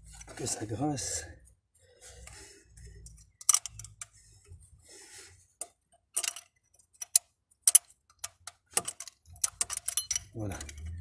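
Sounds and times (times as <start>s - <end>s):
metallic wrench clicks: 7.0s - 11.0s.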